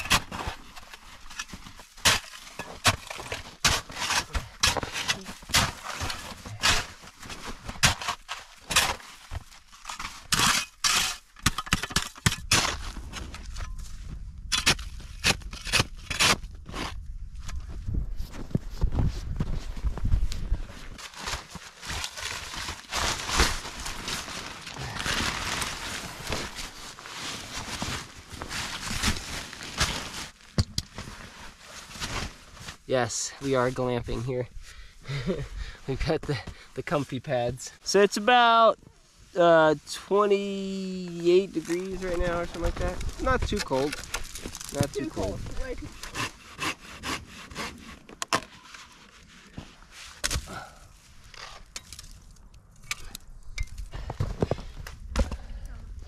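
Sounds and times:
nylon tarp rustling: 20.8s - 32.8s, 40.2s - 45.8s.

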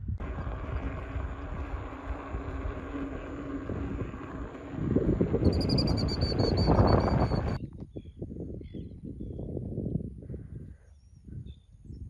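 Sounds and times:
faint steady hum: 0.0s - 7.6s
wind rumbling on microphone: 0.0s - 12.0s
birds chirping: 5.3s - 8.9s.

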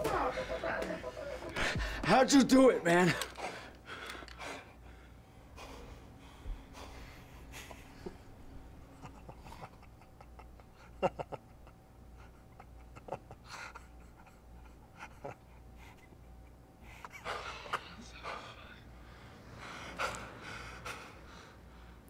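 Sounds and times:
man breathing heavily and gasping: 1.2s - 2.1s, 3.1s - 8.2s, 16.8s - 22.0s.

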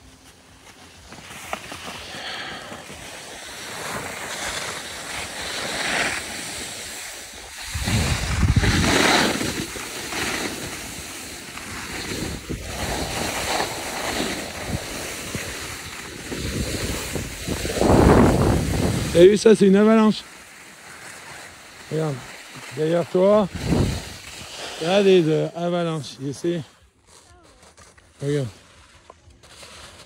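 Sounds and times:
skis sliding on snow: 0.0s - 30.0s
wind rushing over microphone: 7.3s - 9.9s, 11.8s - 19.5s, 23.4s - 24.4s.

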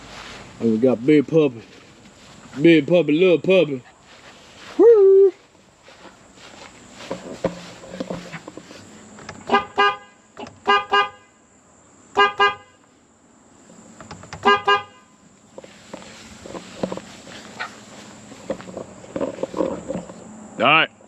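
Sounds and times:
horn beeping: 9.4s - 11.4s, 12.2s - 12.9s, 14.4s - 15.2s.

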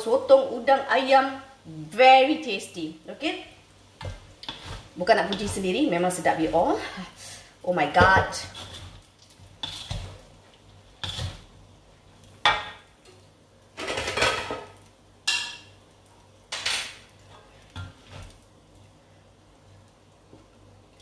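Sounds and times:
wooden spatula scraping a wok: 4.0s - 12.7s, 16.6s - 18.5s.

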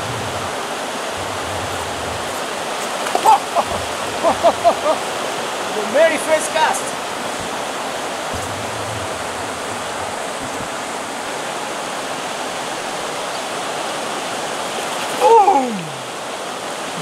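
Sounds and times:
river rushing: 0.0s - 17.0s
person calling: 3.1s - 5.0s, 15.2s - 16.0s.

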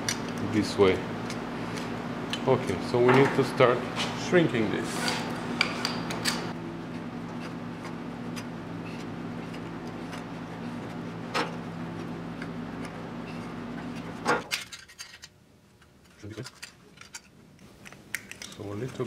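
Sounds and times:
steady machine hum: 0.0s - 14.8s.

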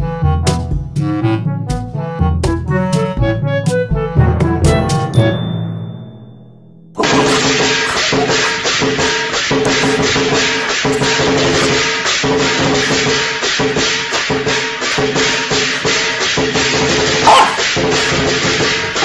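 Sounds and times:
fast percussion beat: 7.0s - 19.0s.

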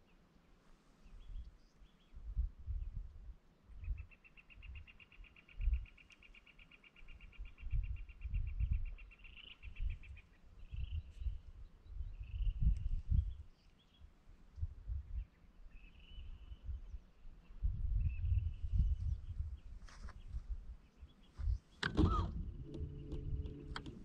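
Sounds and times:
wind gusts on microphone: 2.1s - 4.9s, 7.4s - 13.5s, 14.6s - 15.4s, 16.1s - 24.0s.

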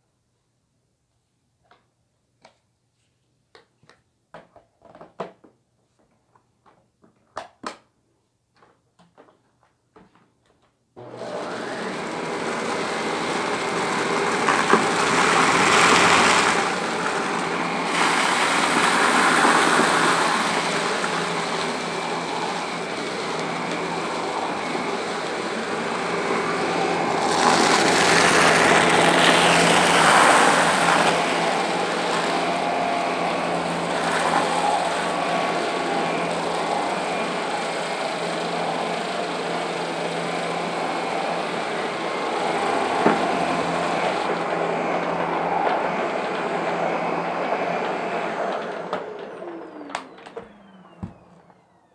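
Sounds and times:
vacuum cleaner running: 11.0s - 51.9s.

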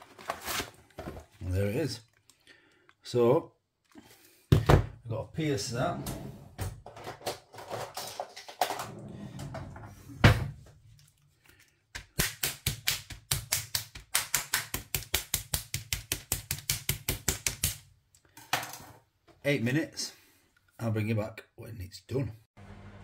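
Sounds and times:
plastic tray rustling: 6.8s - 8.8s.

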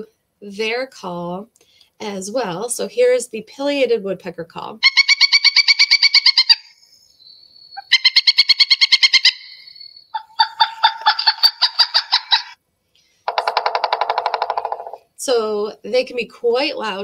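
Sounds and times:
woodpecker calling: 4.8s - 12.6s, 13.3s - 15.1s.

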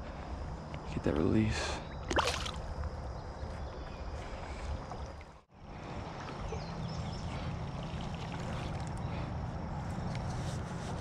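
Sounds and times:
shallow creek water rushing: 2.1s - 2.7s.

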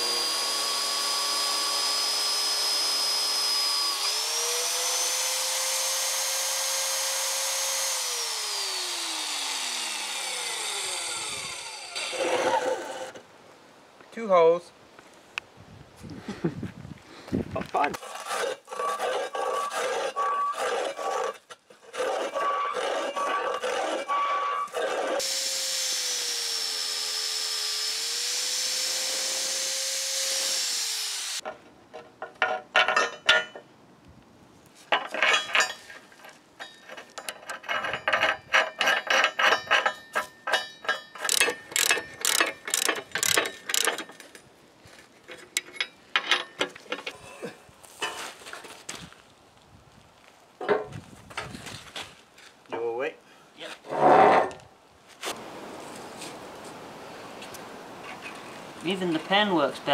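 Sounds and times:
power tool whining: 0.0s - 13.2s, 22.1s - 31.4s, 41.2s - 44.1s
ratchet spanner clicking: 41.2s - 44.1s.

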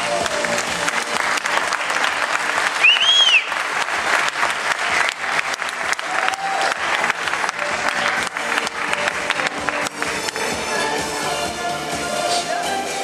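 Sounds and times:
audience applauding: 0.0s - 10.7s
rising and falling whistle: 2.8s - 3.5s.

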